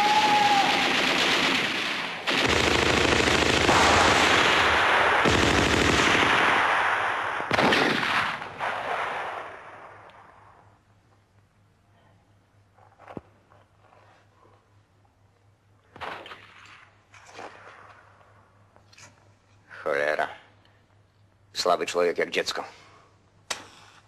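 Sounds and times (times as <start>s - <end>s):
machine-gun fire: 0.1s - 9.8s.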